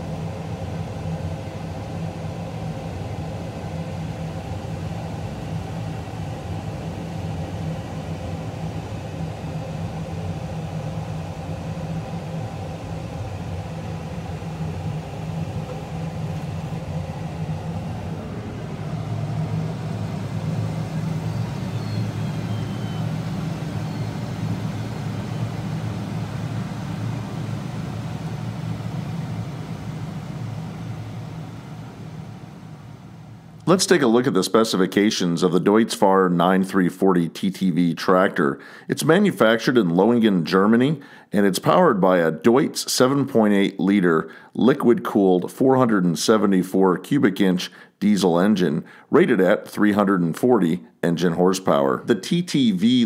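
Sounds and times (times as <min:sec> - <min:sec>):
tractor diesel engine under load: 0:13.1 - 0:29.7.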